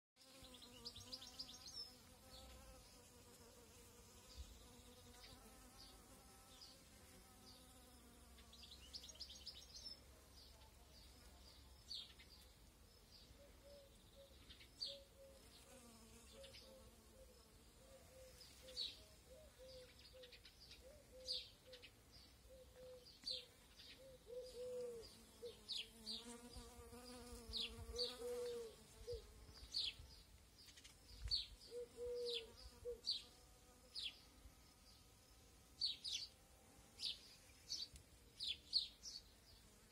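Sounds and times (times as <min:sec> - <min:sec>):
flying insect buzzing: 0:00.2 - 0:09.0, 0:15.4 - 0:17.8, 0:24.5 - 0:29.9
small birds chirping: 0:00.2 - 0:39.9.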